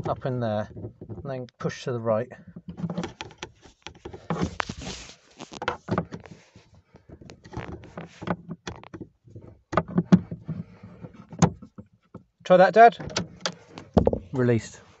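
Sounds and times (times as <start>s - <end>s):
screwdriver scraping on plastic latch: 2.4s - 6.4s, 7.0s - 12.3s, 13.0s - 14.2s
latch knocks and clicks: 13.0s - 14.3s.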